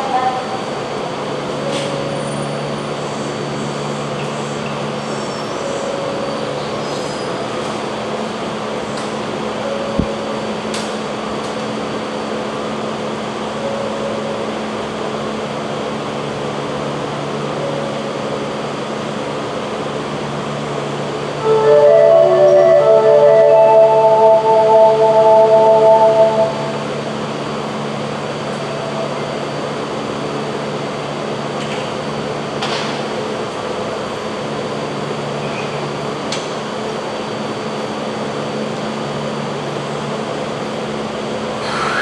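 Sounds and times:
train electrical hum: 0:00.0 - 0:42.0
faint high tone: 0:21.4 - 0:26.9.

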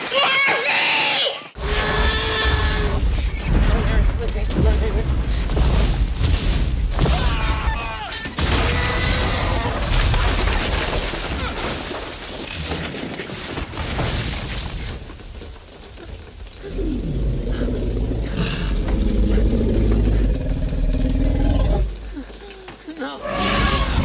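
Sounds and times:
wooden hut crashing and splintering: 0:01.6 - 0:16.6
deep low rumble: 0:16.6 - 0:22.0.

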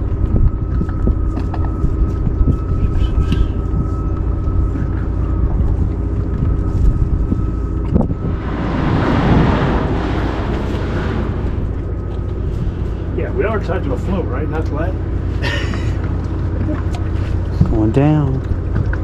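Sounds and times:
outboard motor idling: 0:00.0 - 0:08.3, 0:11.4 - 0:19.0
wind on microphone: 0:00.0 - 0:14.2.

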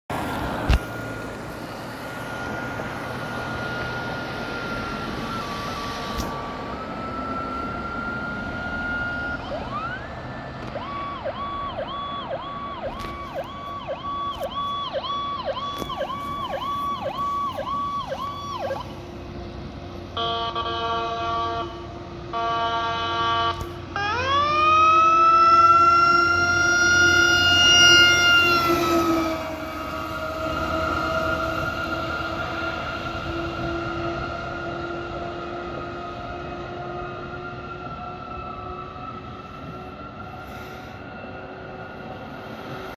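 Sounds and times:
mechanical siren wailing: 0:00.3 - 0:19.0, 0:20.2 - 0:42.9
electronic siren yelping: 0:00.6 - 0:19.0, 0:22.4 - 0:42.9
air horn blasts: 0:20.2 - 0:23.8.

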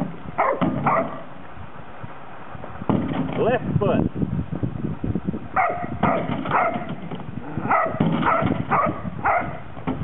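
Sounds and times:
dog barking: 0:00.4 - 0:01.2, 0:05.6 - 0:06.9, 0:07.6 - 0:09.6.

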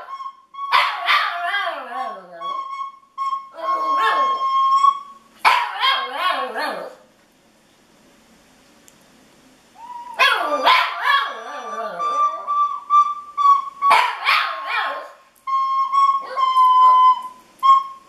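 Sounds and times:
recorder playing: 0:00.0 - 0:05.3, 0:11.3 - 0:14.6, 0:15.4 - 0:18.0
dog howling and yelping: 0:00.7 - 0:02.6, 0:03.5 - 0:04.5, 0:05.7 - 0:07.0, 0:09.9 - 0:12.5.

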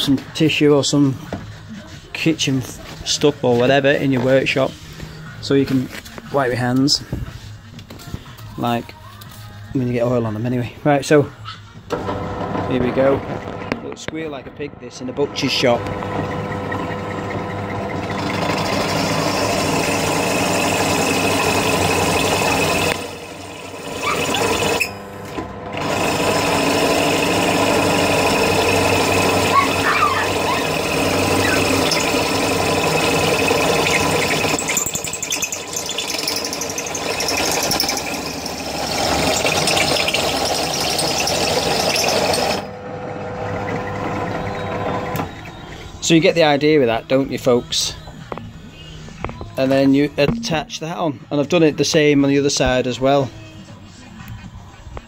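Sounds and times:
drill hum: 0:11.9 - 0:46.2
drill bit squealing on metal: 0:15.4 - 0:25.2, 0:25.8 - 0:42.7, 0:44.2 - 0:48.1.

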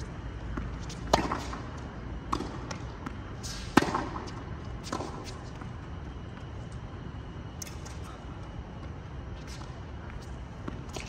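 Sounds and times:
rackets striking tennis ball: 0:02.3 - 0:05.4.

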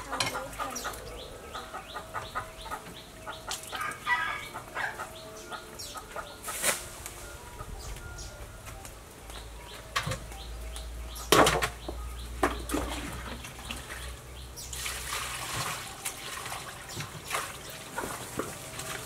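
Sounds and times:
water splashing over meat: 0:14.7 - 0:19.0.

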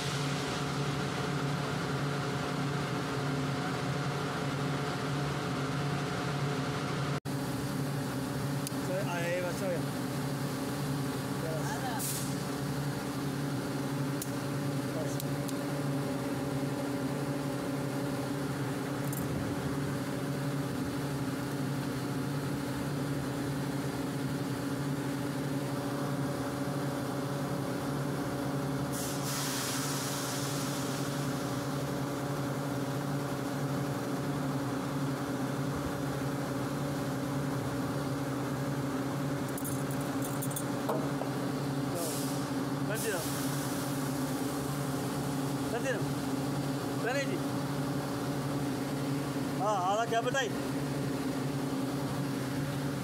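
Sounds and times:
air compressor hum: 0:00.0 - 0:53.0
hissing air burst: 0:28.9 - 0:31.3, 0:42.0 - 0:44.0.

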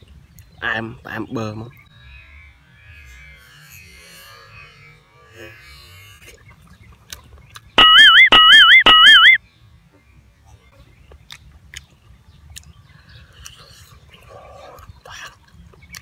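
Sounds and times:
warbling electronic whistle tone: 0:07.8 - 0:09.4
chewing clicks: 0:11.1 - 0:16.0.

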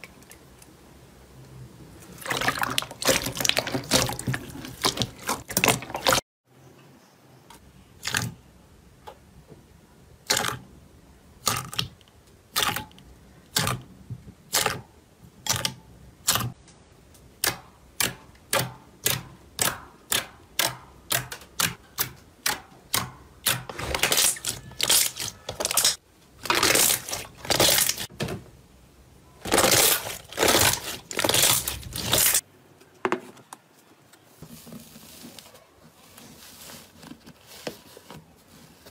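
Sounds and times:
slime squelching: 0:02.0 - 0:06.2, 0:17.3 - 0:28.1, 0:29.4 - 0:32.4
slime popping: 0:23.4 - 0:28.1, 0:29.4 - 0:32.4.

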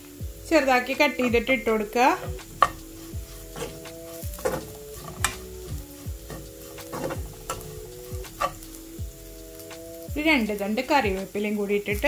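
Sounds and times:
food frying in oil: 0:00.0 - 0:12.0
soft background music: 0:00.0 - 0:12.0
spoon scraping a pan: 0:01.4 - 0:09.0.

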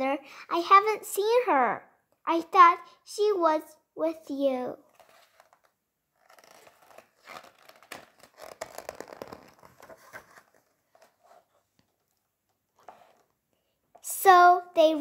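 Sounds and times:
paper page rustling: 0:04.9 - 0:12.2.

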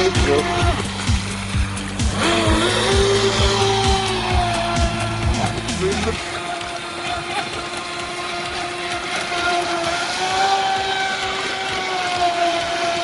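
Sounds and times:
electric motor high whine: 0:00.0 - 0:13.0.

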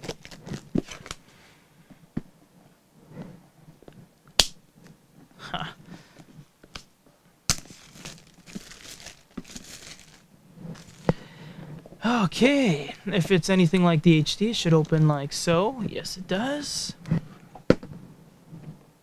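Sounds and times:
plastic wrap crinkling and tearing: 0:00.0 - 0:01.2, 0:07.5 - 0:11.1.

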